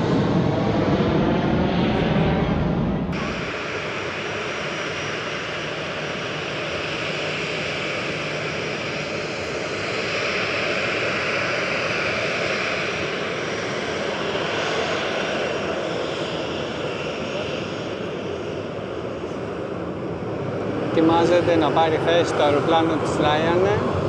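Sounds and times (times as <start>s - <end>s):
jet engines hissing: 0.0s - 24.0s.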